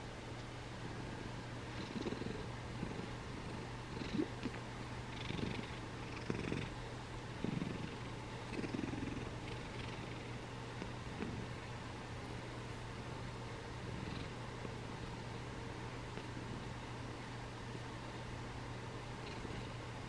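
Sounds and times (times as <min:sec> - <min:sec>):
cat purring: 0:01.7 - 0:06.8, 0:07.4 - 0:11.6, 0:13.8 - 0:15.4, 0:19.2 - 0:19.8.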